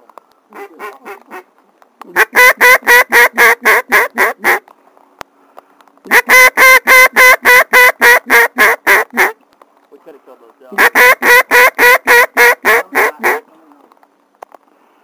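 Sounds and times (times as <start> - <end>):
waterfowl call blown: 6.1 - 9.4, 10.8 - 13.4.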